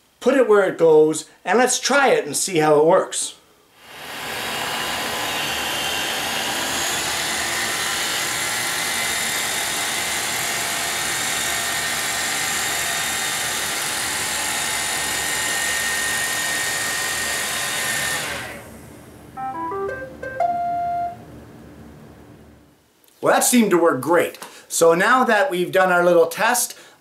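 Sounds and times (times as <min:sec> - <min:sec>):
robotic vacuum whirring: 0:03.9 - 0:12.8, 0:15.2 - 0:18.9.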